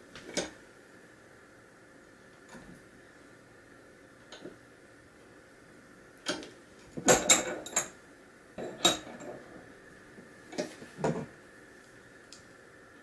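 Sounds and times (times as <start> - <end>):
metal wire clinking against vise: 7.0 - 8.0, 8.6 - 9.4.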